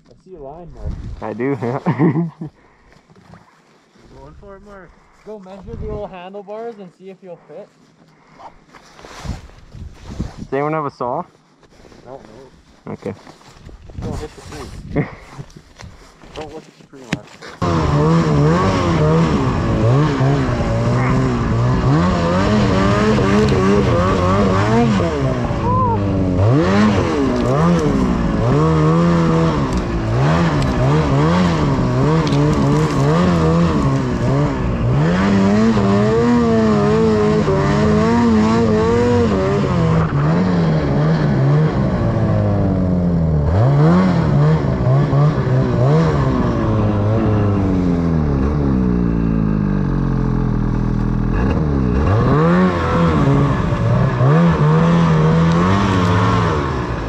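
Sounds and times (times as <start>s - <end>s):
snowmobile engine revving: 17.6s - 57.0s.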